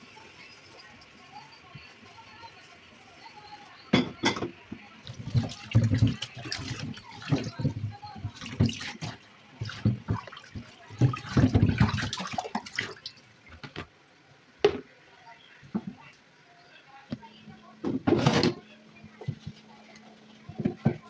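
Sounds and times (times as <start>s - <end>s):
dishes knocking: 4.0s - 4.5s
tap water splashing into sink: 5.1s - 13.9s.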